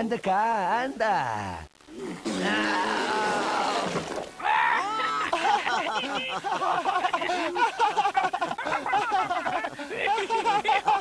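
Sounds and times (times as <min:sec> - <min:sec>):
long cry falling in pitch: 0:02.3 - 0:05.4
cartoon voices laughing and giggling: 0:04.8 - 0:11.0.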